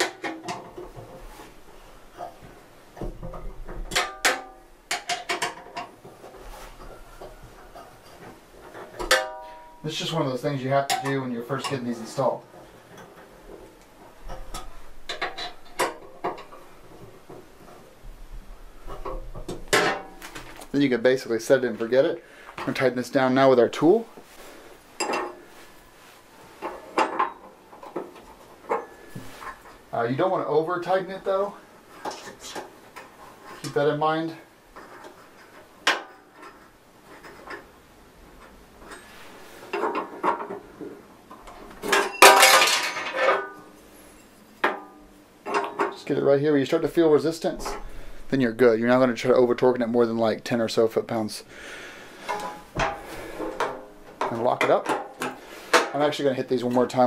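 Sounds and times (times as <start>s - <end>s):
metallic clicks and clanks: 3.2s - 6.0s, 12.9s - 17.8s.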